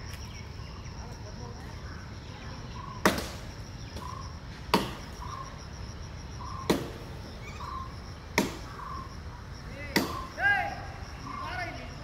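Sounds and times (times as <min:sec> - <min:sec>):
axe chopping wood: 0:04.7 - 0:05.0, 0:08.4 - 0:08.7, 0:09.9 - 0:10.2.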